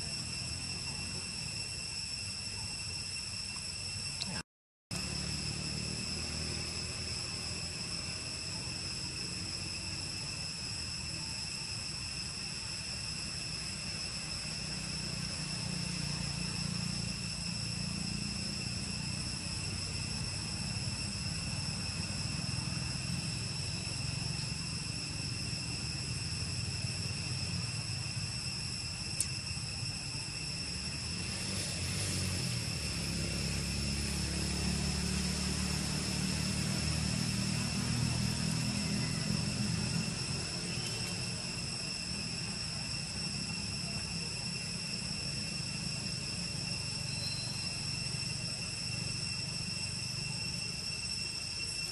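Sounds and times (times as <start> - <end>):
insect chorus drone: 0.0 - 51.9
low engine rumble: 28.9 - 50.8.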